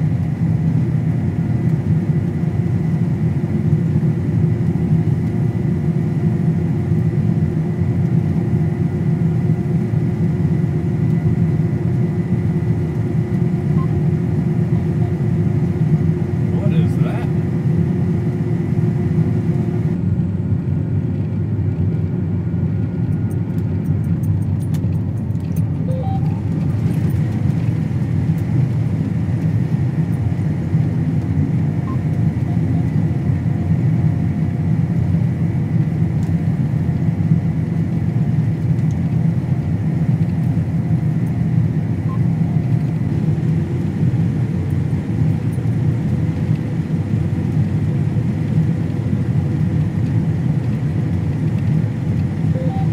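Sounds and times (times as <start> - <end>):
combine harvester drone: 0.0 - 52.9
faint high whine: 52.5 - 52.9.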